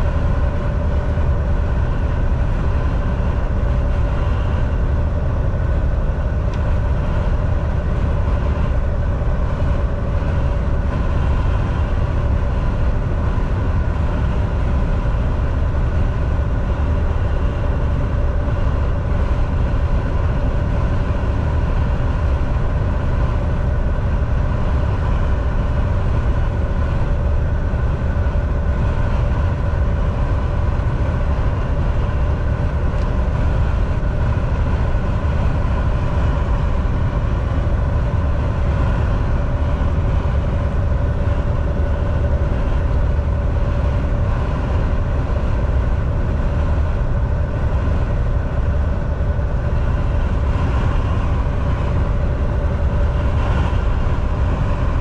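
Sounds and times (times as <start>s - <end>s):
steady whine: 0.0s - 55.0s
truck engine and road rumble: 0.0s - 55.0s.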